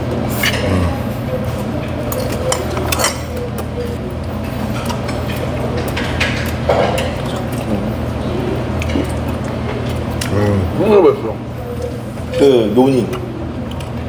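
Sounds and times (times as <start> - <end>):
low background hum: 0.0 - 14.0
tableware clinking against dishes: 1.9 - 4.0, 4.7 - 7.6.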